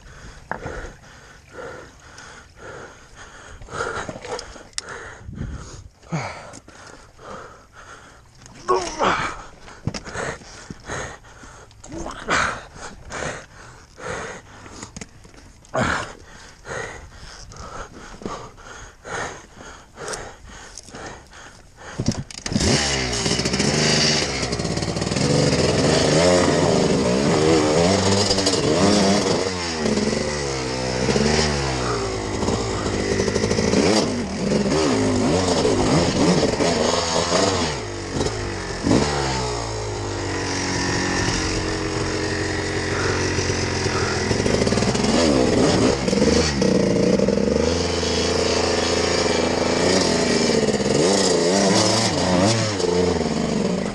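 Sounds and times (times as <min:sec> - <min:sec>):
motorbike engine revving: 0:22.3 - 0:53.9.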